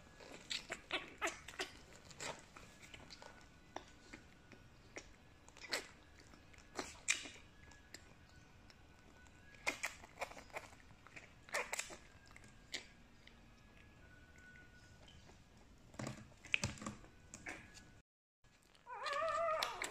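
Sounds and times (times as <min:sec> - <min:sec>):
puppy suckling wet smacks: 0:05.0 - 0:08.0, 0:09.6 - 0:13.4.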